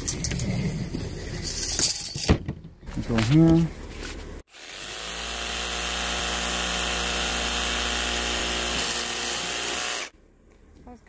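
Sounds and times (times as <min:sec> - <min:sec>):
jigsaw cutting plastic pipe: 0:04.5 - 0:10.1.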